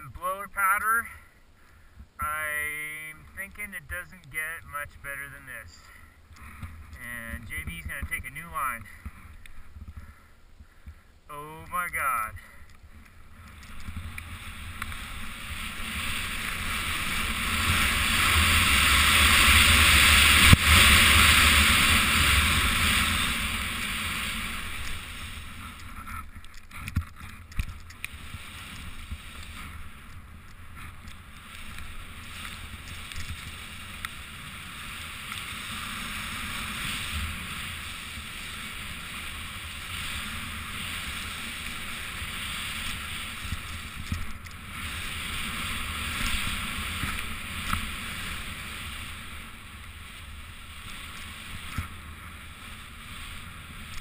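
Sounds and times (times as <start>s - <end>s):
hiss of spraying snow: 31.4s - 54.0s.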